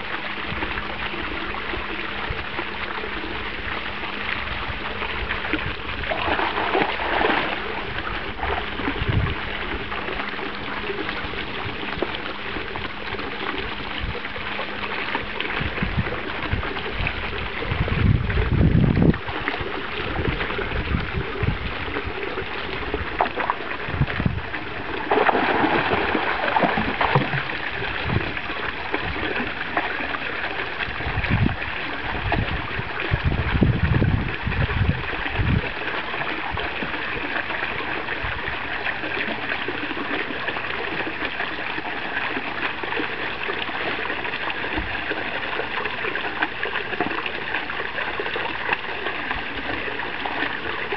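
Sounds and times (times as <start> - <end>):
fountain splashing: 0.0 - 50.9
puppy splashing through water: 4.4 - 50.9.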